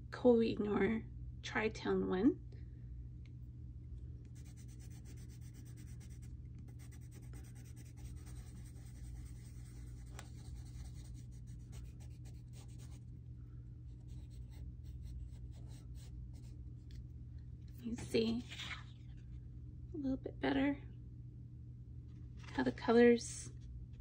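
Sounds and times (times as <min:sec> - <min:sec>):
faint low hum: 0:00.0 - 0:24.0
pencil scribbling on paper: 0:04.4 - 0:13.0, 0:14.0 - 0:16.5.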